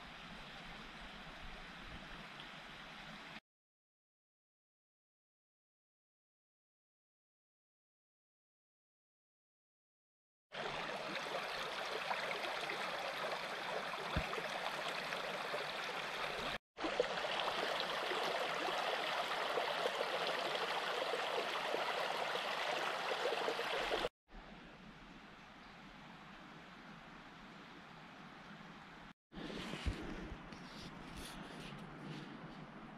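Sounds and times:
brook babbling: 10.6 - 24.1.

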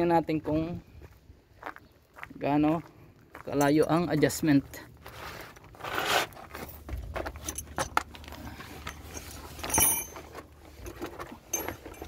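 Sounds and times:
scuffing and handling noise: 3.4 - 12.0
small metal objects clinking: 8.8 - 12.0
loud ringing metal clink: 9.1 - 10.2.

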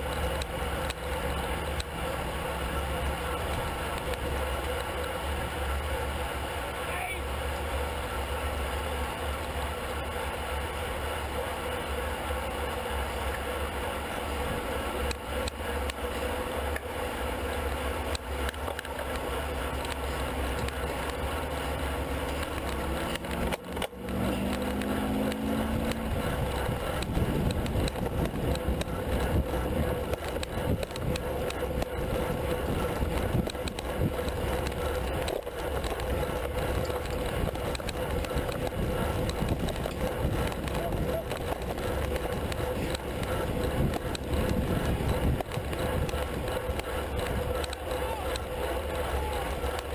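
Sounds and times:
bicycle drivetrains: 0.0 - 49.9
bicycle tyres on tarmac: 0.0 - 49.9
wind rush on camera: 22.2 - 48.6.

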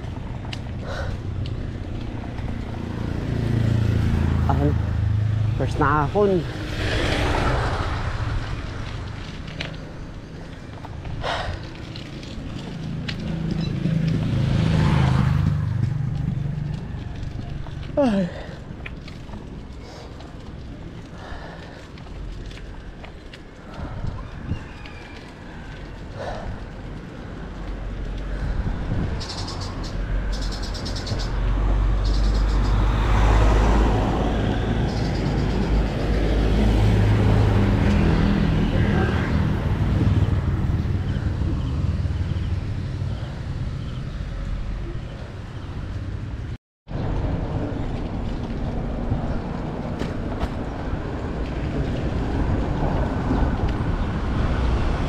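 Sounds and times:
bike rolling on concrete: 0.0 - 55.0
vehicle engine passing by: 2.0 - 10.1, 12.5 - 18.5, 27.8 - 55.0
wind rumble on microphone: 18.6 - 55.0.

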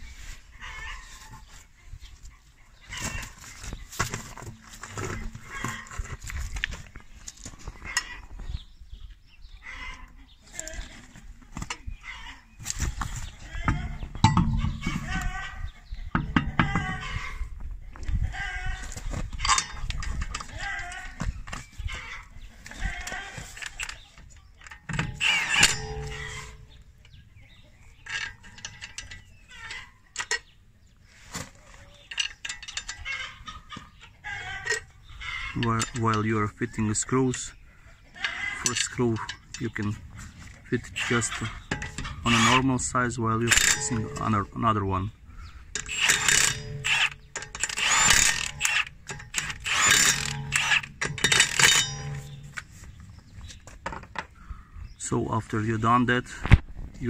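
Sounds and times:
metal clatter and ringing: 13.7 - 15.2, 19.4 - 20.4, 24.7 - 26.8, 43.4 - 44.5, 45.8 - 52.6
metal bolts clicking and scraping: 13.7 - 15.5, 16.1 - 17.2, 19.4 - 21.1, 24.6 - 27.1, 27.9 - 30.5, 32.0 - 33.6, 34.5 - 37.5, 38.2 - 40.0, 40.7 - 44.7, 45.7 - 53.0
impact wrench bursts: 25.0 - 26.6, 43.5 - 44.2, 45.8 - 52.5.

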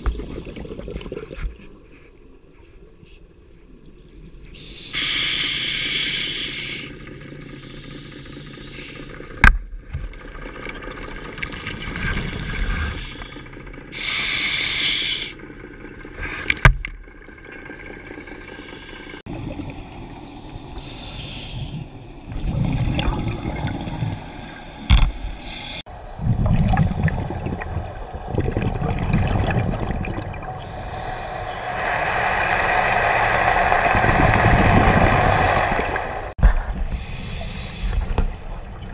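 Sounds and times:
exhaled air bubbling: 0.0 - 1.7, 19.1 - 38.9
regulator inhalation hiss: 4.6 - 9.4, 12.3 - 15.4, 17.7 - 19.2, 20.3 - 21.9, 25.4 - 26.2, 30.6 - 34.4, 36.9 - 38.4.

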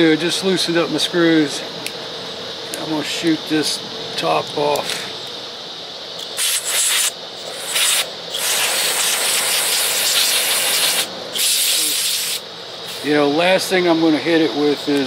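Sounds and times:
aerosol spray hissing: 6.4 - 13.1.

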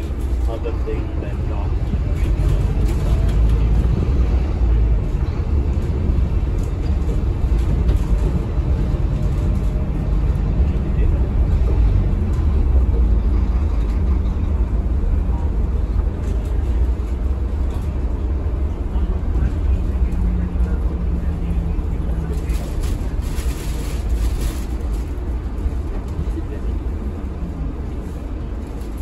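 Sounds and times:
bus diesel engine rumble: 0.0 - 29.0.

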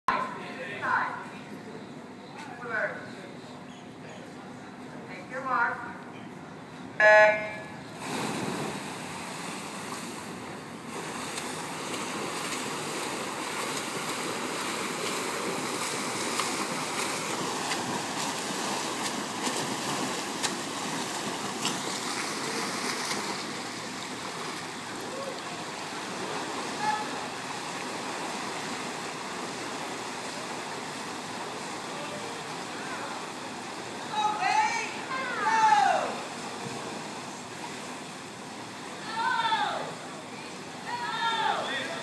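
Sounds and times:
electronic start tone beep: 7.0 - 7.8
swimmers splashing: 7.0 - 42.0.

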